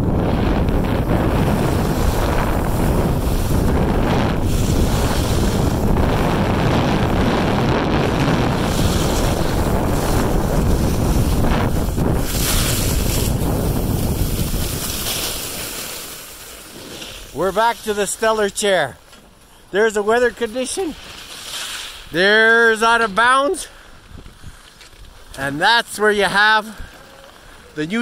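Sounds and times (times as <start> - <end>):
wind buffeting microphone: 0.0 - 16.4
skis sliding on packed snow: 0.4 - 28.0.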